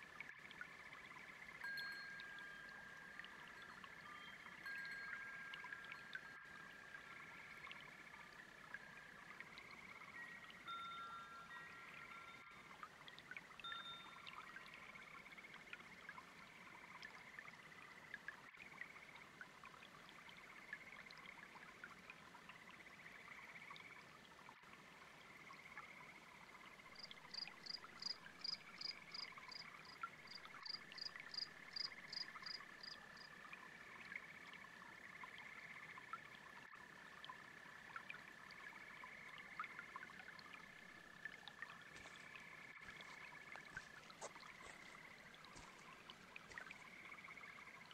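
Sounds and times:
babbling brook: 0.0s - 47.9s
frogs trilling: 0.5s - 19.4s, 22.5s - 24.1s, 25.1s - 47.9s
cricket chirping: 26.9s - 33.3s.

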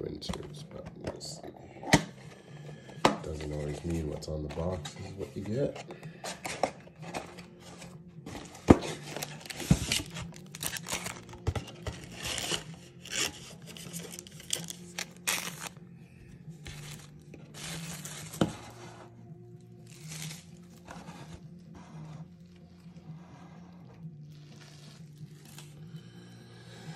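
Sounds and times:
plastic wrapping tearing and crinkling: 8.3s - 15.8s, 16.6s - 18.7s, 19.8s - 21.0s, 24.3s - 25.8s.

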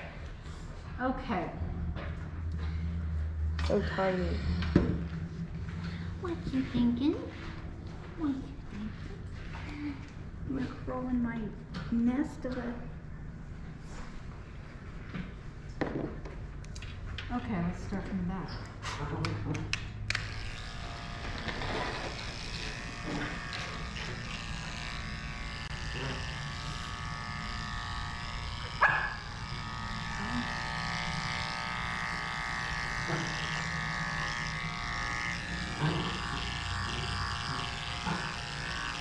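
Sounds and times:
electric clippers humming: 19.2s - 39.0s.

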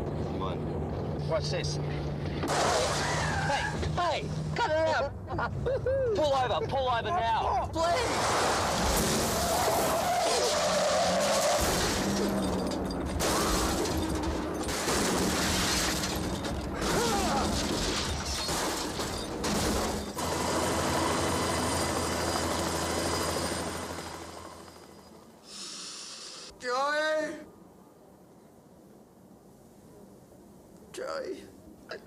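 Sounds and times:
glass breaking: 2.4s - 3.4s, 8.2s - 20.2s
loud car crashes: 2.4s - 4.0s, 7.9s - 20.3s.

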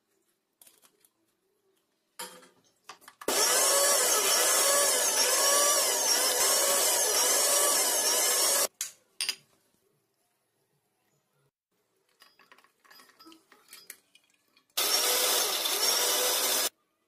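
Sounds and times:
mixer grinder running: 3.3s - 8.7s, 14.8s - 16.7s.

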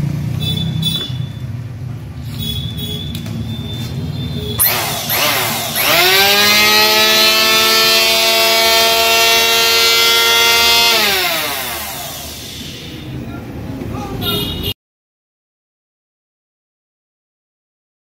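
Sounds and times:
electric planer motor whine: 4.6s - 12.8s.

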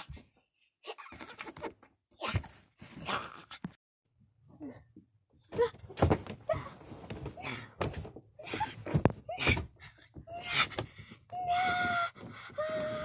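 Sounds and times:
child wailing: 11.4s - 13.0s.

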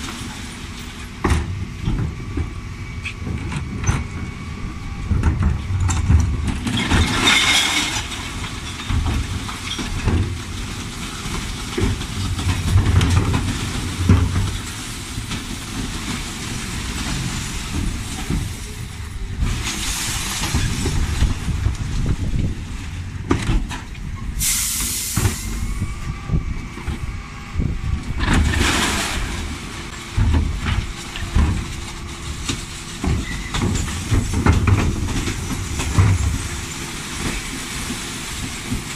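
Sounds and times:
diesel engine rumbling: 0.0s - 38.9s
compressed air hisses: 24.4s - 25.4s.

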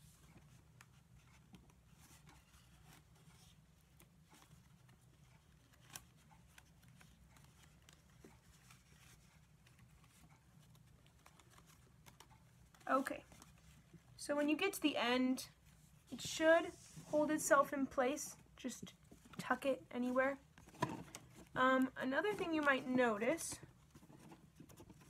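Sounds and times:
reed weaving ticks and rustles: 0.0s - 14.2s
low room hum: 0.0s - 25.0s.

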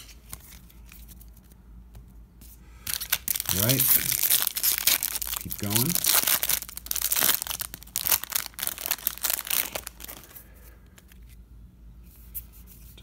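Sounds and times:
plastic wrapper crinkling: 2.9s - 10.4s.

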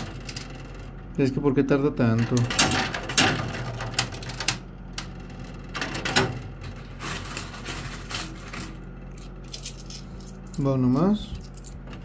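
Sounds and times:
low machine hum: 0.0s - 12.0s
coins clinking and clattering: 6.7s - 11.9s.

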